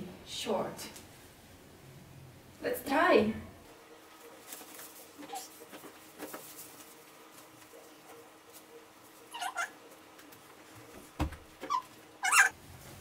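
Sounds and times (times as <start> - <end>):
clothes rustling: 4.1 - 9.5
dull thump: 11.2 - 11.5.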